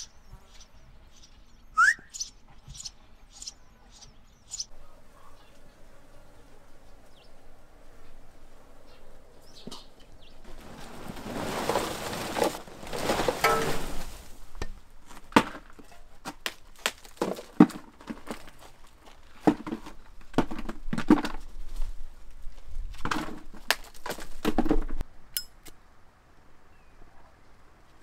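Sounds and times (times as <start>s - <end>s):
rustling rush: 5.0s - 15.4s
fuel lumps clinking into plastic bucket: 9.6s - 21.5s, 22.9s - 25.0s.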